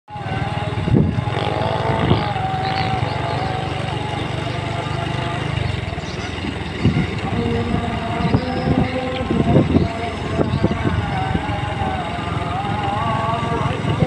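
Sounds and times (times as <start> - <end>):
motorcycle engine cruising: 0.1 - 14.0
wind noise on microphone: 0.6 - 3.5, 6.4 - 14.0.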